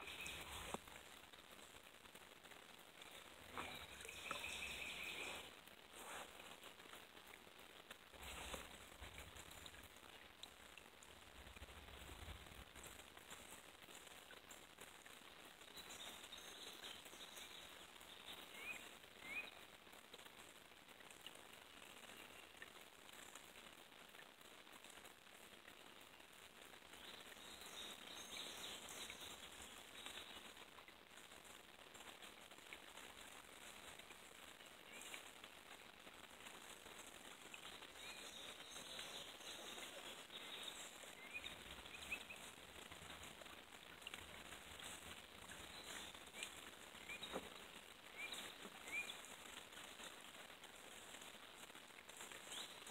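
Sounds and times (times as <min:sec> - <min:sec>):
faint bird chirps: 0:00.0 - 0:00.8, 0:03.1 - 0:05.5, 0:37.6 - 0:43.2, 0:44.8 - 0:49.2
faint steady hiss: 0:00.0 - 0:52.9.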